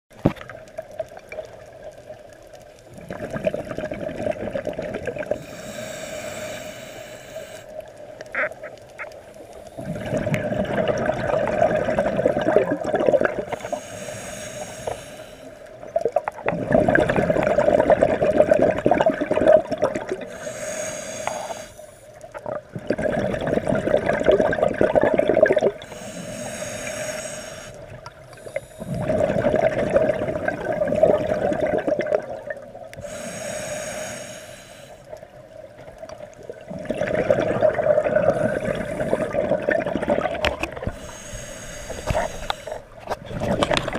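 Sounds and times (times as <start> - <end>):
regulator inhale hiss: 5.3 - 8.0, 9.4 - 10.2, 13.5 - 15.8, 20.2 - 22.2, 25.8 - 29.2, 33.0 - 35.4, 38.3 - 39.4, 40.8 - 43.0
exhaust bubbles rushing: 9.9 - 13.5, 16.5 - 20.2, 29.0 - 32.5, 36.7 - 40.9.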